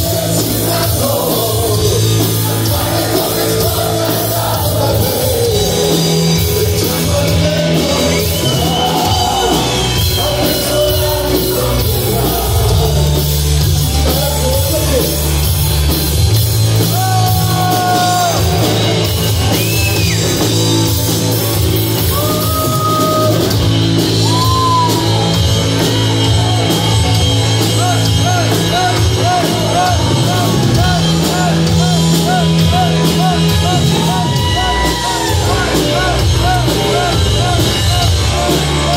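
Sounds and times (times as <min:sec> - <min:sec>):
person singing: 0:00.0 - 0:15.1, 0:27.7 - 0:38.9
rock band playing live: 0:00.0 - 0:38.9.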